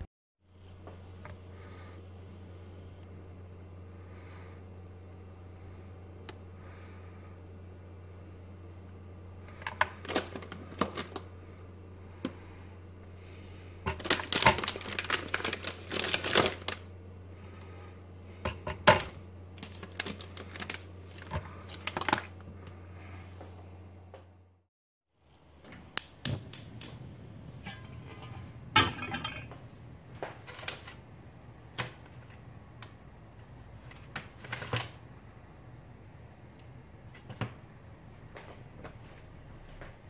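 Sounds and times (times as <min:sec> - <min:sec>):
steady low hum: 0:00.0 - 0:40.0
wrapper crinkling: 0:09.6 - 0:11.3, 0:13.9 - 0:16.9, 0:19.6 - 0:22.5, 0:30.2 - 0:31.0, 0:33.7 - 0:35.0.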